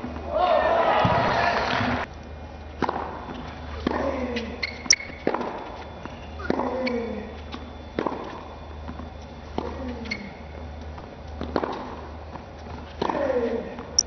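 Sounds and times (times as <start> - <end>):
racket striking tennis ball: 2.8 - 3.2, 4.9 - 5.6, 8.0 - 8.3, 11.4 - 12.0
shoe squeaking on court: 3.2 - 11.9.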